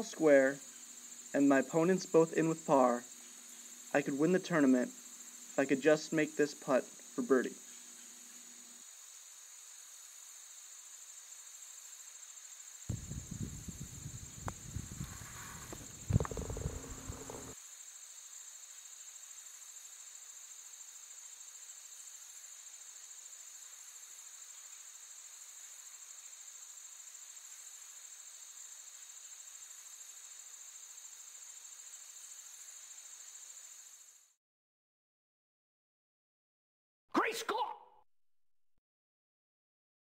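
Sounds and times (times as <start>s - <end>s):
high insect chirring: 0.0s - 34.4s
low knocks and thuds: 12.9s - 17.6s.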